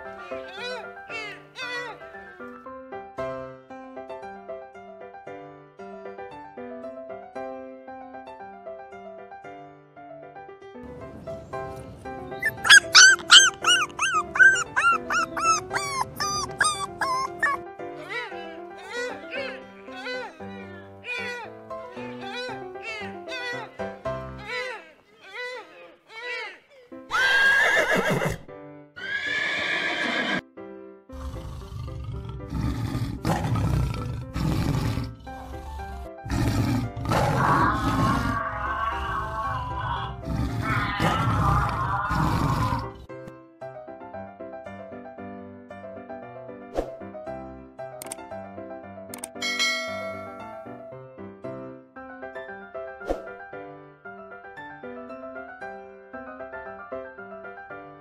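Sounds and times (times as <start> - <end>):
background music: 0.0 - 25.1, 26.3 - 58.0
dog whimpering in short yelps: 12.4 - 17.6
animal roar sound effects: 31.1 - 43.1.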